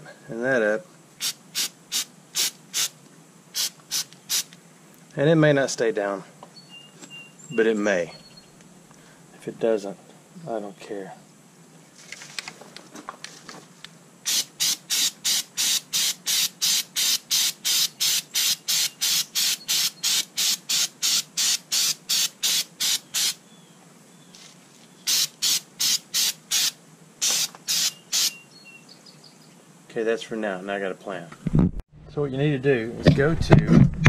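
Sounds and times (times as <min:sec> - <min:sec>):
aerosol spray can hissing bursts: 0:01.2 - 0:04.5, 0:14.3 - 0:23.4, 0:25.1 - 0:28.4.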